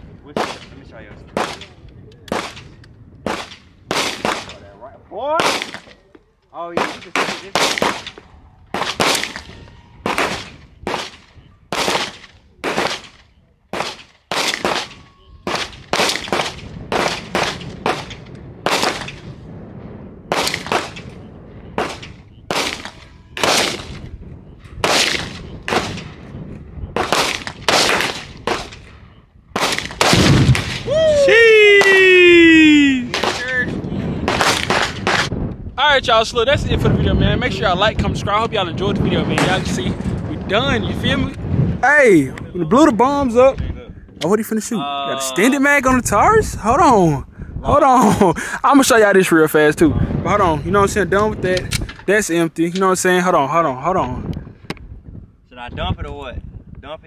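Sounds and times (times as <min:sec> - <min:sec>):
gunshots with short echo: 0:20.3 - 0:24.1, 0:24.8 - 0:29.0, 0:29.6 - 0:30.9, 0:34.2 - 0:35.4.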